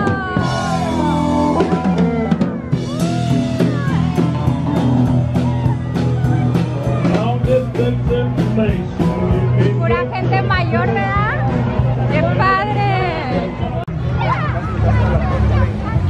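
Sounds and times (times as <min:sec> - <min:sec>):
drums and cymbals beat: 0:00.0 - 0:13.9
electric guitar: 0:00.0 - 0:16.0.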